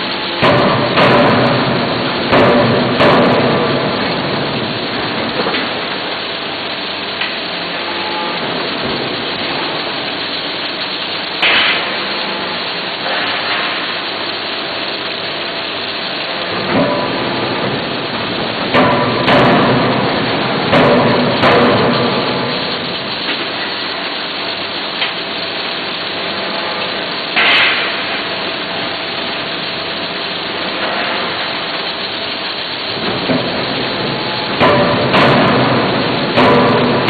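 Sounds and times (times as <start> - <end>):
forging shop din: 0.3 - 5.9, 16.3 - 24.0, 27.4 - 28.3, 33.0 - 37.0.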